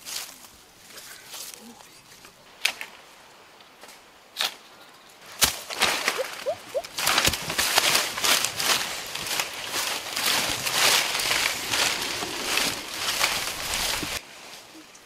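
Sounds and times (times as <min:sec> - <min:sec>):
footsteps on dry leaves: 0:00.0 - 0:02.3, 0:05.2 - 0:14.7
leafy brush rustling: 0:00.0 - 0:15.0
twigs crackling and snapping: 0:05.3 - 0:14.2.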